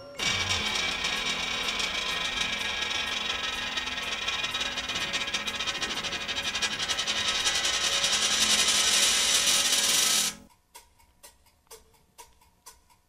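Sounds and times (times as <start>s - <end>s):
fast rattling noise: 0.2s - 10.5s.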